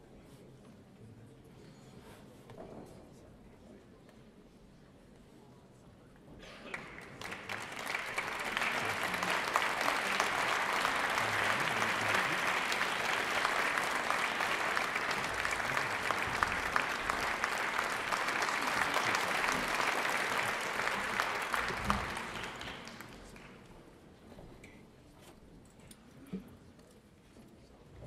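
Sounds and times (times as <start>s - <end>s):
audience applauding: 6.7s - 23.7s.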